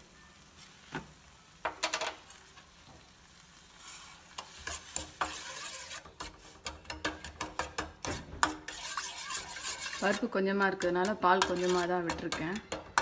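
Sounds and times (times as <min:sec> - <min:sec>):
spoon scraping metal pan: 0:03.8 - 0:13.0.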